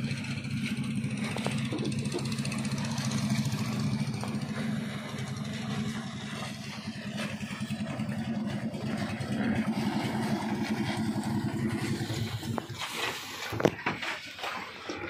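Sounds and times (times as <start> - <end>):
boat engine puttering: 0.0 - 15.0.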